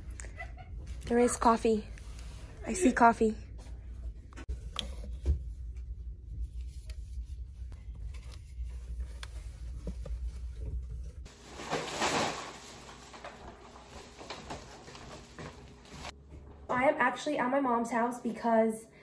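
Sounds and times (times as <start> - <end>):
low steady hum: 0.0 - 19.0
plastic bag rustling: 11.2 - 16.2.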